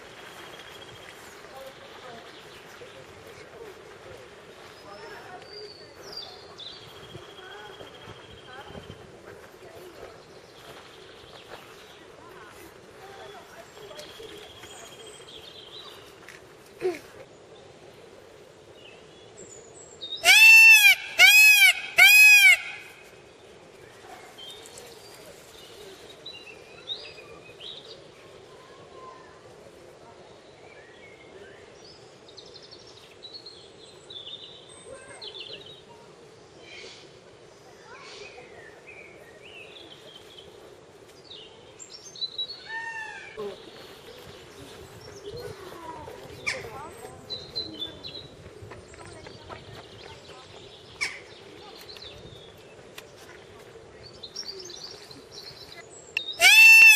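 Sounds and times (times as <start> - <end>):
faint birds chirping: 0.0 - 56.9
peacock wailing calls: 20.2 - 23.0, 56.2 - 56.9
songbirds chirping and singing: 38.1 - 56.9.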